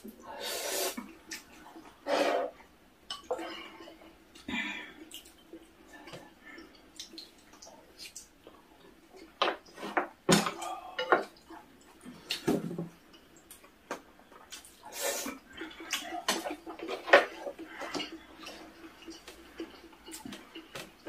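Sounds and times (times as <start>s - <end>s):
wet slurping and chewing: 14.4s - 21.0s.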